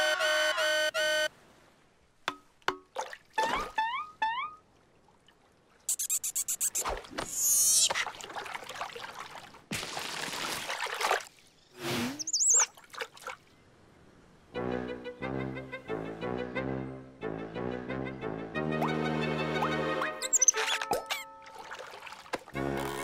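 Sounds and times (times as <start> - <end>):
splashing water: 2.6 - 3.9, 4.7 - 13.5, 20.5 - 23.0
squeaky rising glides: 5.9 - 7.9, 20.0 - 21.4
high warbling whistle: 12.2 - 12.7.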